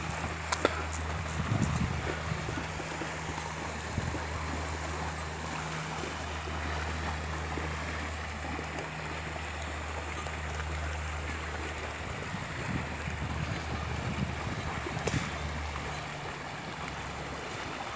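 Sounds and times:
wind noise: 0.0s - 3.0s, 3.7s - 4.6s, 12.0s - 15.7s
steady low hum: 0.0s - 17.9s
water buffalo wading: 0.0s - 17.9s.

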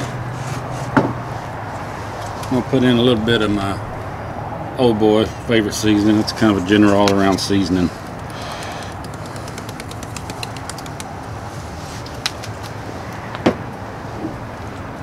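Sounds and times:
seasoning shaker rattling: 8.2s - 11.3s
sharp clicks: 8.2s - 11.3s.

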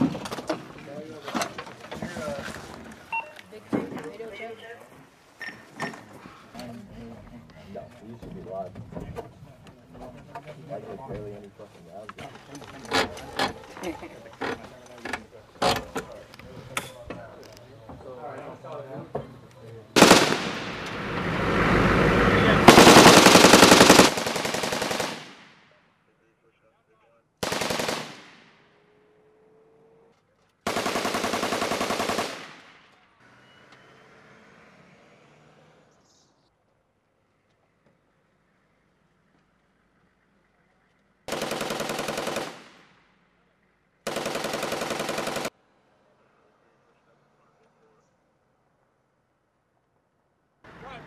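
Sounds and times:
heavy machine gun firing: 20.0s - 21.2s, 22.6s - 25.6s, 27.4s - 28.6s, 30.7s - 32.7s, 41.3s - 42.9s, 44.1s - 45.5s.

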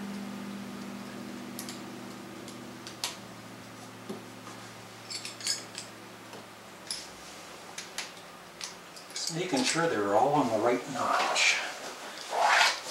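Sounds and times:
low steady hum: 0.0s - 12.9s
metallic clinks: 5.0s - 6.0s, 8.6s - 9.7s.

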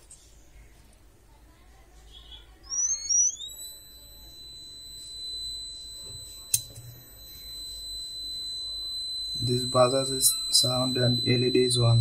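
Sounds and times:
buzzer chirps and high tone: 2.2s - 12.0s.

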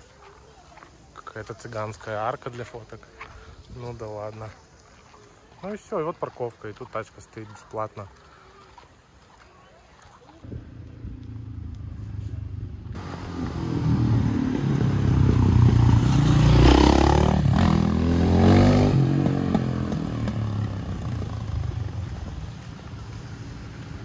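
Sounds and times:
vehicle engine passing by: 11.1s - 24.0s.

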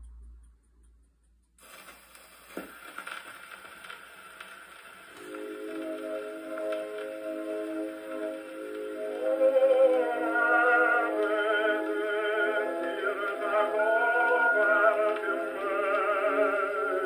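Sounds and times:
tenor singing with vibrato: 5.3s - 17.0s.

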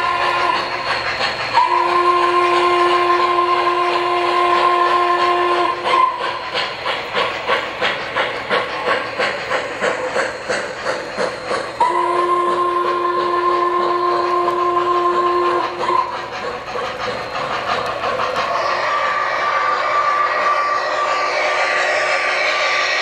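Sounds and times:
steam whistle blasts: 0.0s - 0.9s, 1.5s - 6.6s, 11.8s - 16.5s, 18.4s - 23.0s
freight cars clickety-clack: 0.0s - 19.6s.

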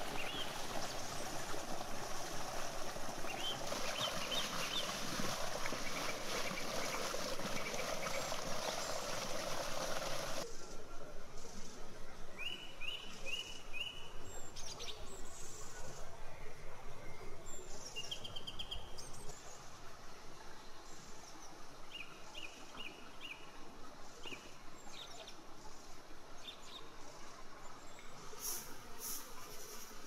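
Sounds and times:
water rushing in stone channel: 0.0s - 10.5s
small birds chirping: 3.0s - 10.4s.

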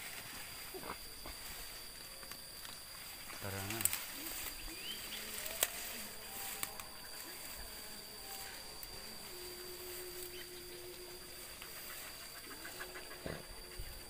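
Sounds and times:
high-pitched insect drone: 0.0s - 14.0s
rustling through undergrowth: 0.0s - 14.0s
dogs sniffing: 10.4s - 14.0s.

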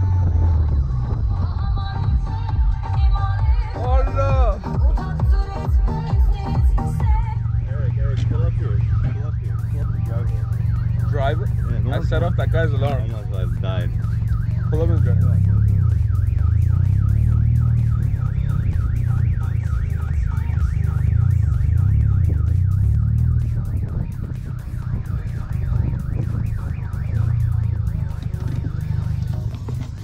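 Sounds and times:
deep throbbing bass: 0.0s - 30.0s
warbling siren-like electronic tone: 7.0s - 30.0s.

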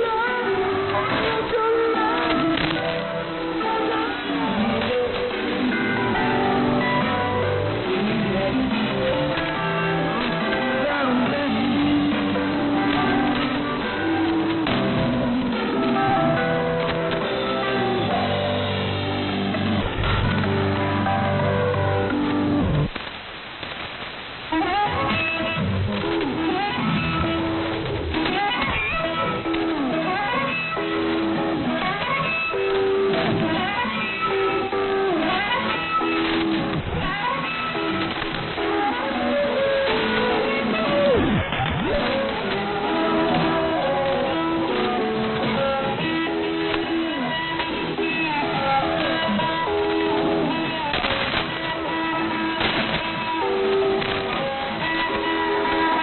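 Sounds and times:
sliding guitar music over radio: 0.0s - 56.0s.

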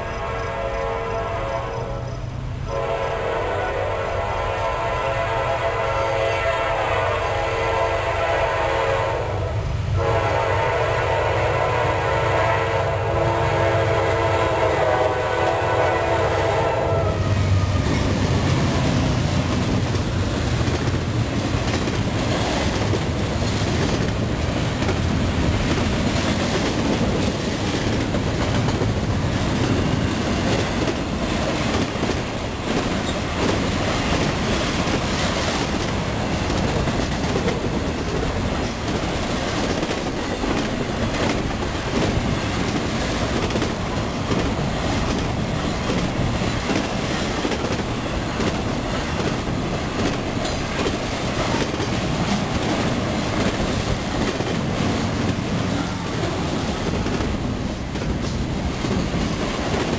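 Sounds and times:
train air horn: 0.0s - 19.0s
freight train rumbling past: 0.0s - 59.9s
wheels clattering on rails: 17.4s - 59.9s.

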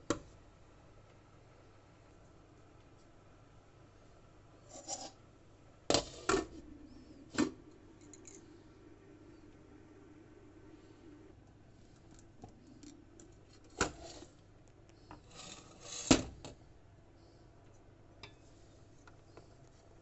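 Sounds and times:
lid scraping on pot rim: 4.7s - 5.2s.

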